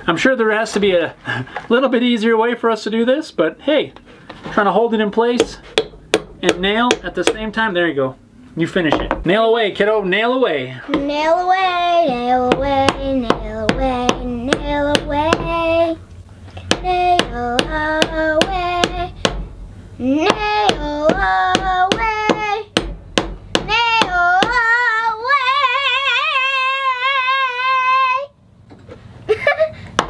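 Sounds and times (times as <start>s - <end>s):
high voice singing: 16.6s - 19.2s.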